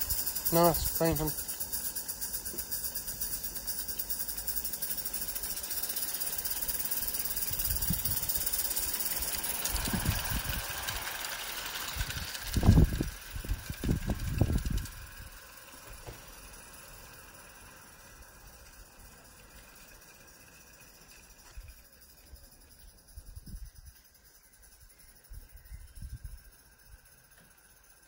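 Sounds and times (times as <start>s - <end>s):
steam locomotive hissing and chuffing: 0.0s - 22.3s.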